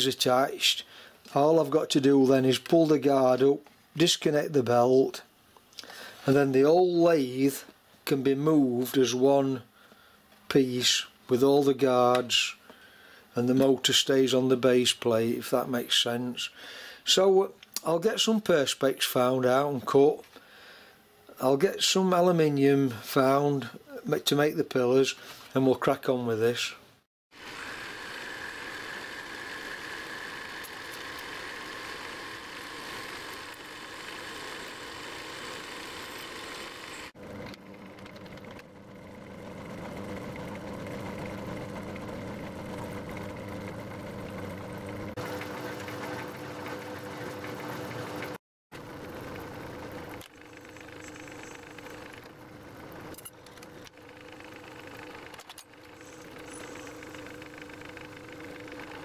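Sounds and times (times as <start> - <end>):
metal lathe running: 27.4 - 59.0.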